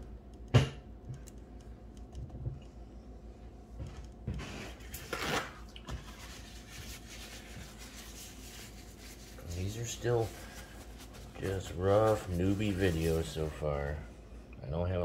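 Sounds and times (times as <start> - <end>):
soft rustle: 6.0 - 13.7.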